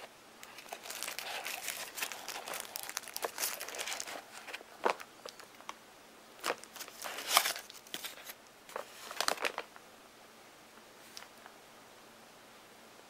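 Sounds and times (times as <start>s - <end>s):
paper and card packaging rustling: 0.4s - 5.7s, 6.4s - 9.7s.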